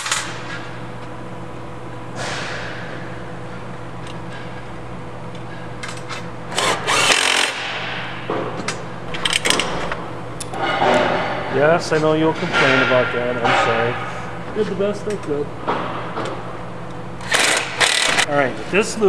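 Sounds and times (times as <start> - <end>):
cordless drill driving screw: 6.6 - 7.6, 17.2 - 18.2.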